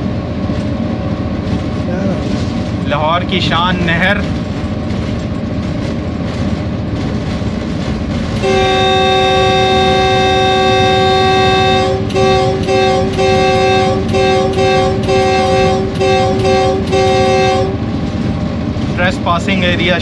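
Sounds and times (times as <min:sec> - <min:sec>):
locomotive running noise: 0:00.0 - 0:20.0
locomotive air horn blasts: 0:08.4 - 0:17.8.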